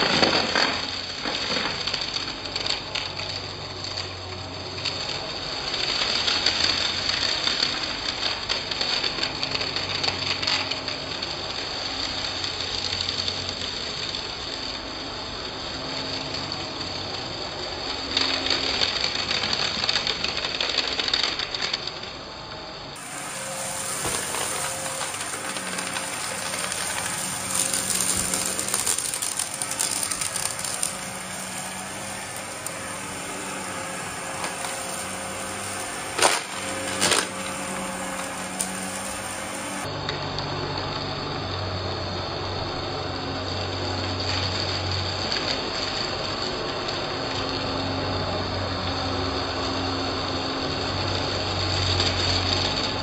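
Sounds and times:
debris crackling: 23.0s - 39.9s
vacuum cleaner running: 23.0s - 40.0s.

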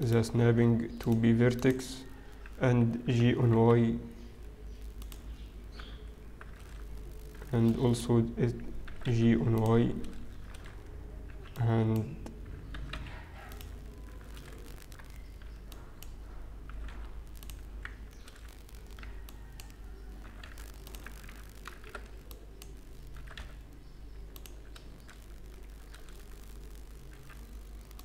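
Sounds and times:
keyboard keys clicking: 8.8s - 25.2s.

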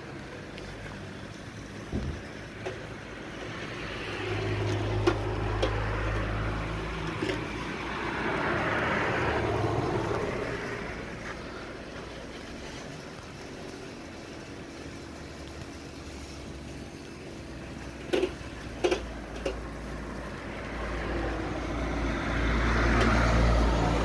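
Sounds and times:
vehicle passing: 3.0s - 13.0s, 18.8s - 24.0s.

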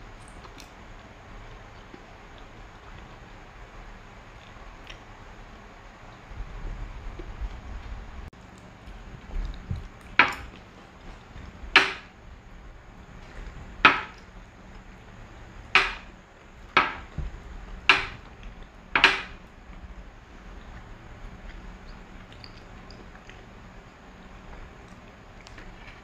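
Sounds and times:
sharp ringing knocks: 11.8s - 12.1s, 13.8s - 14.2s, 15.7s - 16.1s, 16.8s - 17.1s, 17.9s - 18.2s, 19.0s - 19.4s.

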